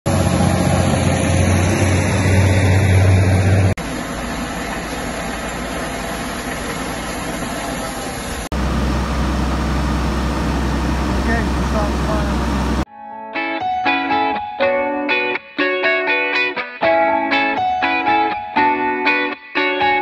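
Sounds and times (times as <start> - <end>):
tractor engine humming: 0.1 - 12.9.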